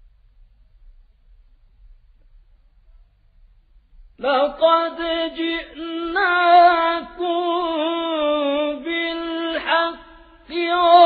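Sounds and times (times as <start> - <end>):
man chanting recitation: 4.2 - 11.0.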